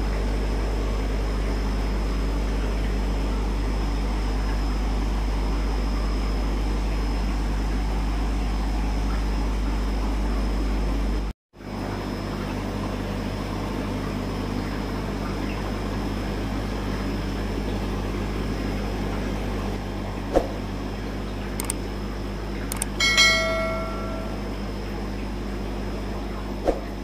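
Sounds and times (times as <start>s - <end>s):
steady hum and hiss: 16.9s - 27.0s
sharp clicks: 21.6s - 21.8s, 22.7s - 23.0s
bell-like notification chime: 23.0s - 24.5s.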